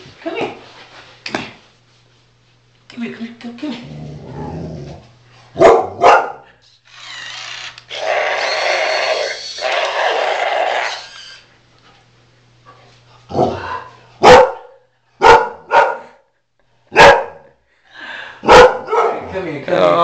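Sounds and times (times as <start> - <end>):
dog barking: 5.6 - 6.5, 14.2 - 16.2, 16.9 - 17.6, 18.4 - 19.3.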